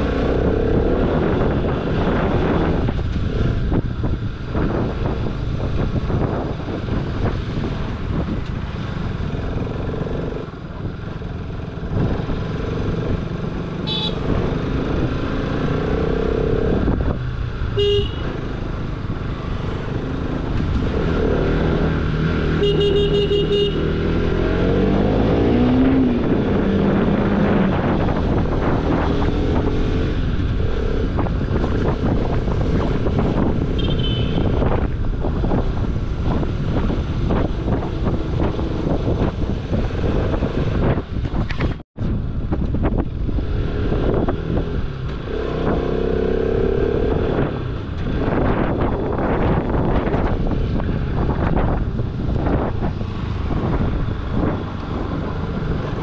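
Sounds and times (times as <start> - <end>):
wind noise: 0.0 - 56.0
vehicle horns: 13.8 - 14.4, 17.8 - 18.5, 22.5 - 24.0, 33.7 - 34.8.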